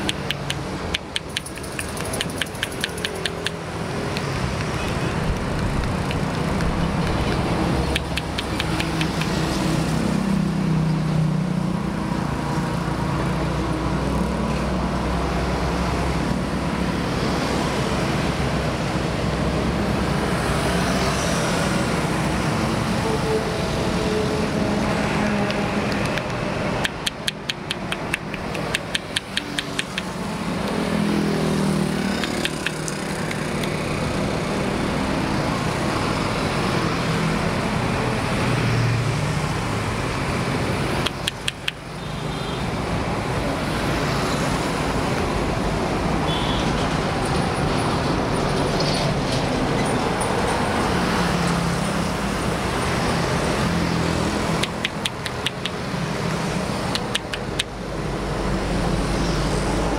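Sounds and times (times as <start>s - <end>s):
rapid clicks: 0.0s - 9.4s, 25.5s - 30.2s, 32.2s - 33.8s, 41.0s - 41.8s, 54.6s - 55.9s, 56.9s - 57.8s
highway traffic: 0.0s - 59.9s.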